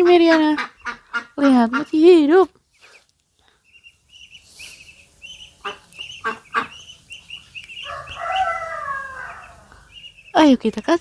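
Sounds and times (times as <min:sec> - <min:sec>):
ducks peeping: 0:00.0 - 0:11.0
duck honking call: 0:05.6 - 0:06.9.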